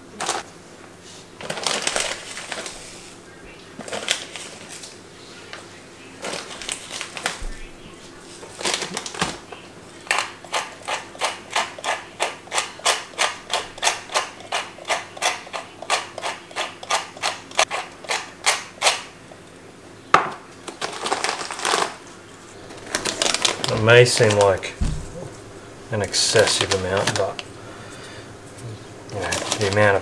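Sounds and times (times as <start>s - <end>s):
pepper mill grinding clicks: 10.1s - 19.0s.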